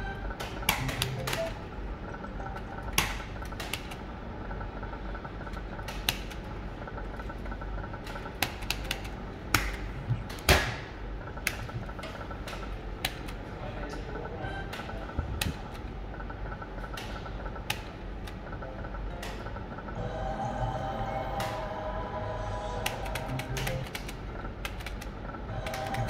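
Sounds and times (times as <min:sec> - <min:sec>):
faint repeating electronic tone: 0:00.0 - 0:03.4, 0:14.0 - 0:15.3, 0:18.4 - 0:24.6
slot machine buttons clicking: 0:00.0 - 0:04.1, 0:05.6 - 0:06.5, 0:08.0 - 0:10.4, 0:16.6 - 0:19.9, 0:22.8 - 0:26.0
gaming machines humming: 0:00.0 - 0:26.0.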